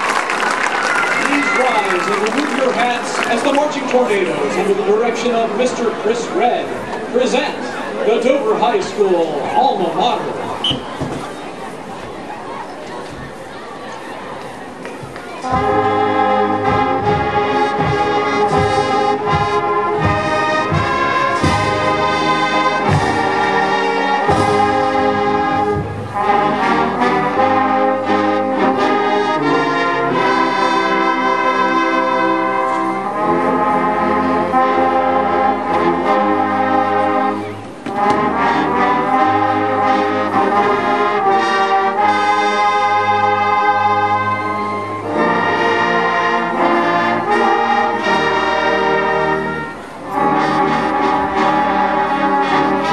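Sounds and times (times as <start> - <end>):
brass chords: 15.4 - 52.9.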